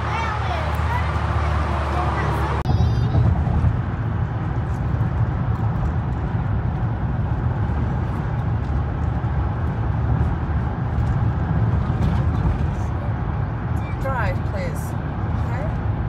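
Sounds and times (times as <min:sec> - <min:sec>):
car tyre and engine rumble: 0:00.0 - 0:16.0.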